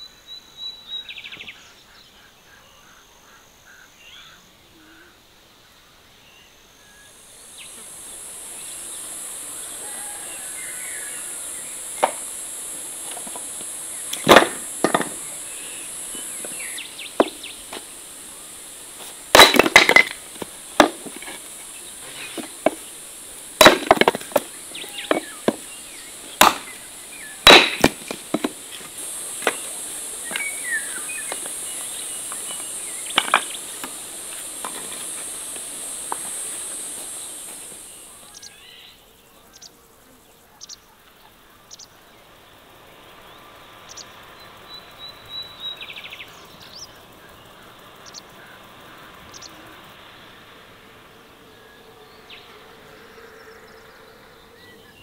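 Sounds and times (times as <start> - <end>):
high insect drone: 0.0 - 55.0
hatchet chopping wood: 12.0 - 12.2, 14.1 - 15.3, 19.3 - 21.3, 23.6 - 25.6, 26.4 - 26.8, 27.4 - 28.6, 33.2 - 34.0.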